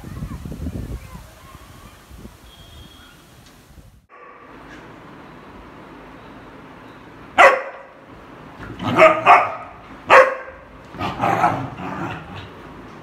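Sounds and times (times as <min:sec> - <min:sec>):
dogs barking in play: 0:04.1 - 0:05.0, 0:07.3 - 0:08.0, 0:08.6 - 0:12.9.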